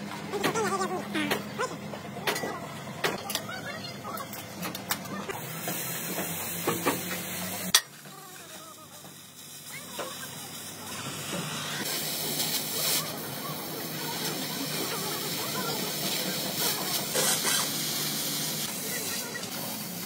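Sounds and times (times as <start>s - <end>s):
cutting torch hissing: 5.3s - 20.0s.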